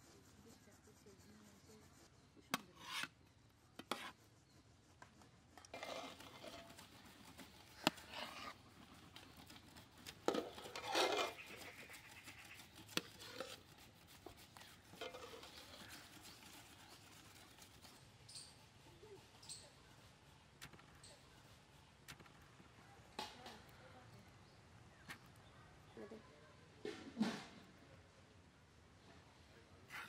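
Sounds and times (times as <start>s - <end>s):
metal spatula scraping wok: 2.7s - 3.2s, 5.7s - 7.0s, 7.8s - 8.6s, 10.2s - 13.7s, 14.8s - 16.5s.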